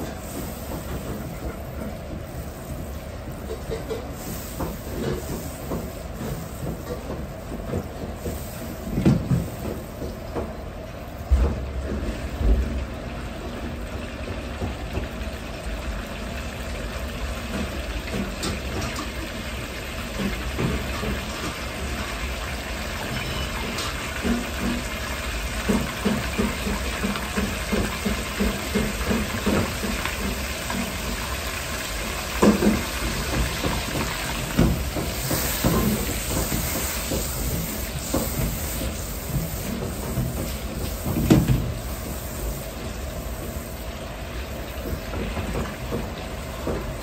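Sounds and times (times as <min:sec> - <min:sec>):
gas burner rumbling: 0:00.0 - 0:47.0
butter sizzling in a wok: 0:15.1 - 0:44.8.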